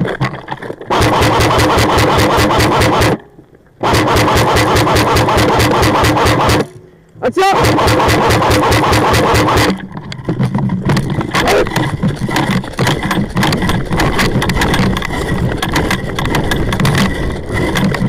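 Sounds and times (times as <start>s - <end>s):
airsoft rifle firing full auto: 0.9s - 3.2s, 3.8s - 6.7s, 7.6s - 9.8s.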